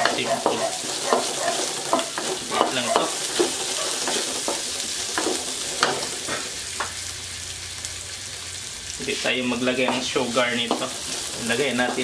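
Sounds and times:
wooden spatula scraping pan: 0:00.0 - 0:06.5, 0:09.8 - 0:12.0
onions sizzling in oil: 0:00.0 - 0:12.0.

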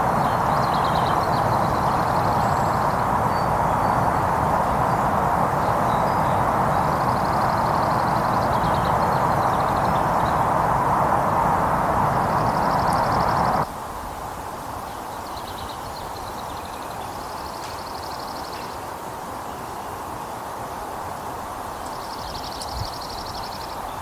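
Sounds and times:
songbirds trilling: 0:00.0 - 0:13.6
heavy motorway traffic: 0:00.0 - 0:13.7.

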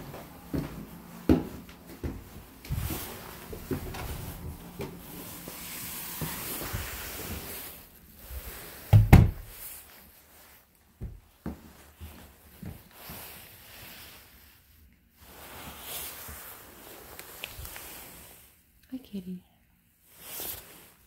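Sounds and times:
rustling movement: 0:00.0 - 0:18.6
knocks and thumps: 0:08.9 - 0:09.5.

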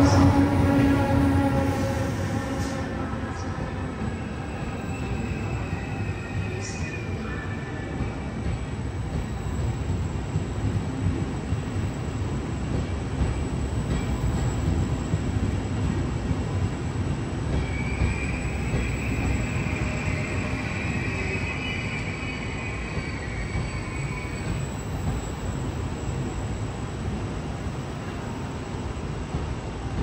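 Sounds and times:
train rolling past: 0:00.0 - 0:30.0.

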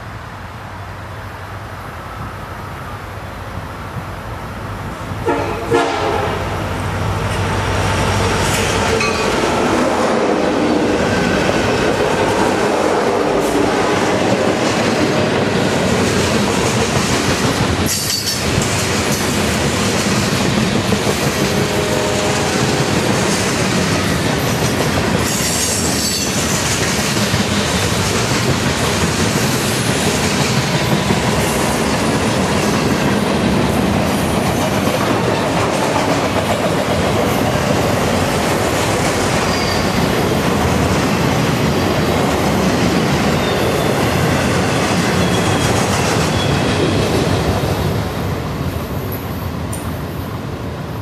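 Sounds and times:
train wheels rumbling on rail: 0:00.0 - 0:51.0
faint high wheel squeals: 0:39.4 - 0:40.1, 0:45.1 - 0:47.1.

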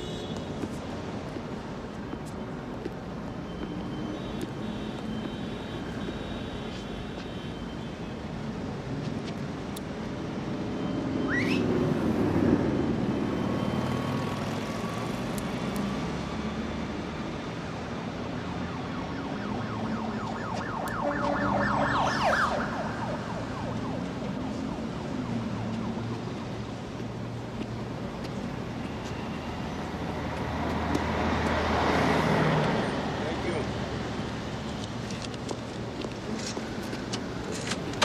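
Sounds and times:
street traffic rumble: 0:00.0 - 0:38.0
quick rising tone: 0:19.8 - 0:24.1.

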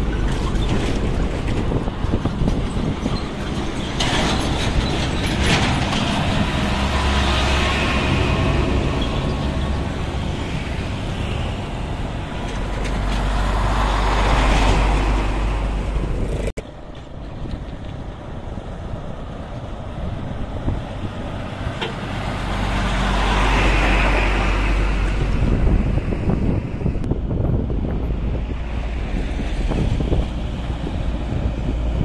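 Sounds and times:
diesel trucks passing: 0:00.0 - 0:32.0
motorbikes passing: 0:05.5 - 0:16.5.

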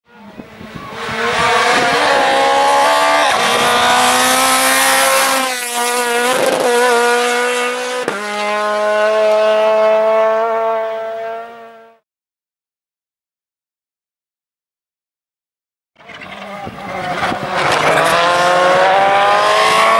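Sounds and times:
rally car engine at high revs: 0:00.1 - 0:12.0, 0:16.0 - 0:19.9.

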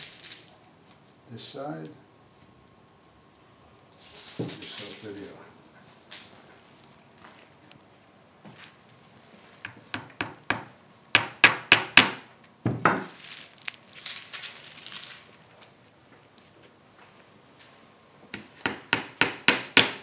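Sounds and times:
short rustle: 0:03.9 - 0:07.6, 0:13.1 - 0:15.4
hammer tapping pins into wood: 0:09.7 - 0:13.1, 0:18.3 - 0:20.0.

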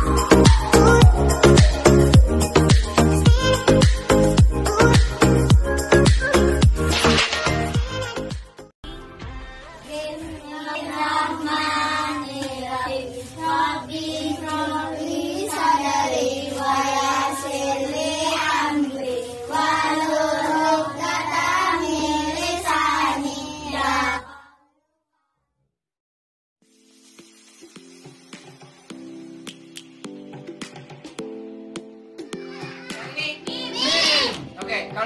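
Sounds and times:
voices singing a song: 0:00.0 - 0:06.6, 0:09.8 - 0:24.7
steady low backing music: 0:00.0 - 0:08.1.

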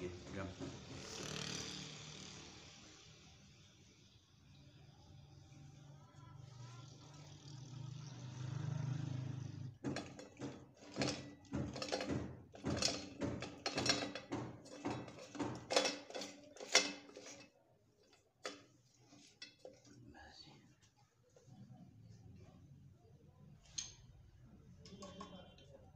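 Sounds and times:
metallic clicks and clatter: 0:09.8 - 0:20.0.

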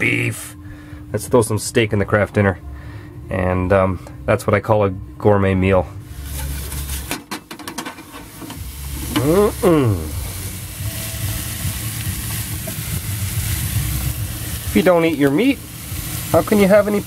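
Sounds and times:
frying pan clattering on stove: 0:07.0 - 0:09.3
meat sizzling in a pan: 0:08.0 - 0:17.0.

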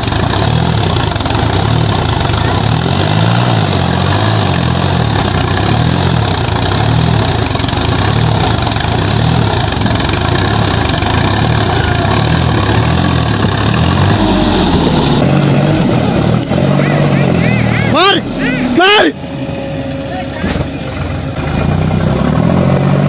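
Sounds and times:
tractor diesel engine under load: 0:00.0 - 0:23.0.

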